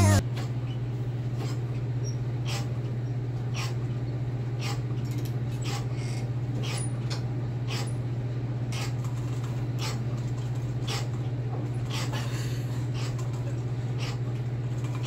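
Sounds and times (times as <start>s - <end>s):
low hum: 0.0s - 0.2s.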